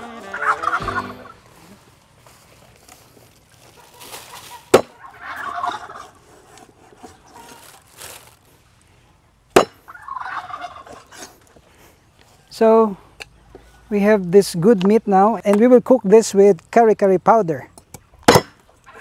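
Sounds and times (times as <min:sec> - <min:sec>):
poultry calls: 0:00.0 - 0:01.8, 0:03.6 - 0:06.2, 0:09.9 - 0:11.3.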